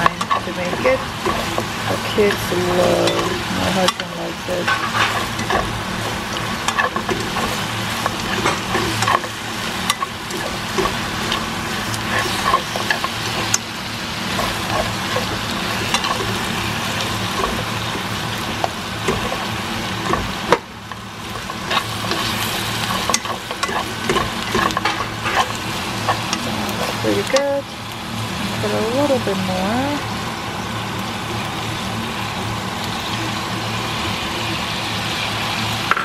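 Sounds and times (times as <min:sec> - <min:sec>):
chopsticks scraping a pan: 0:00.0 - 0:27.5
meat sizzling in frying pan: 0:00.0 - 0:36.0.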